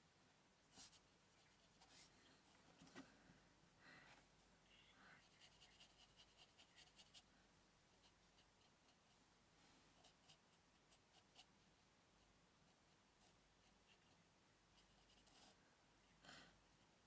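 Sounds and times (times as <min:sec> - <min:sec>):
paintbrush scratching on paper: 0:05.2 - 0:07.3.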